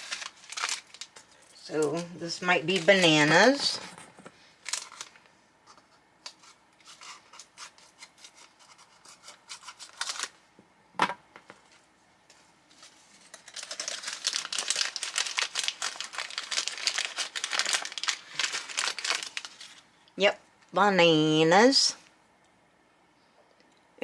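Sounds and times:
plastic packet crinkling: 0.0s - 2.0s, 4.6s - 5.2s, 9.8s - 10.4s, 13.3s - 19.9s.

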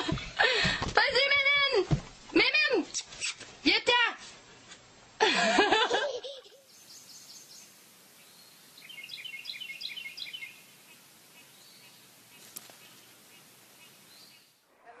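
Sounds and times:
songbird chirping: 6.4s - 15.0s.

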